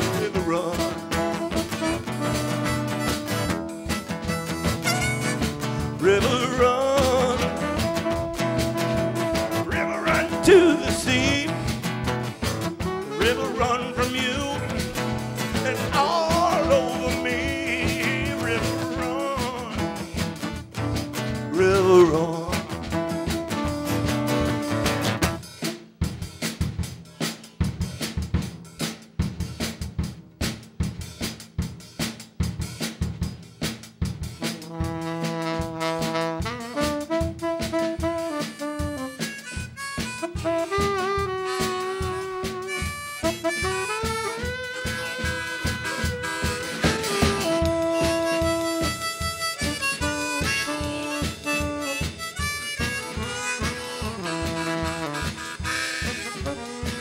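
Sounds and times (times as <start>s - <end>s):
saxophone held notes: 0.0s - 11.4s, 12.5s - 25.4s, 34.6s - 57.0s
strummed acoustic guitar: 0.0s - 25.4s, 43.2s - 57.0s
drum kit solo: 0.0s - 57.0s.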